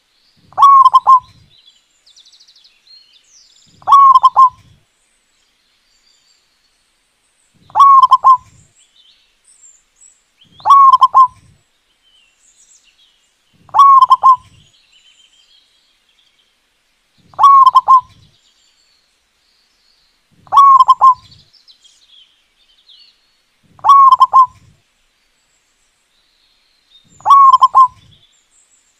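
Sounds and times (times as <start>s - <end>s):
dove cooing: 0.5s - 1.5s, 3.7s - 4.8s, 7.6s - 8.6s, 10.6s - 11.6s, 13.6s - 14.6s, 17.3s - 18.3s, 20.4s - 21.4s, 23.7s - 24.8s, 27.2s - 28.1s.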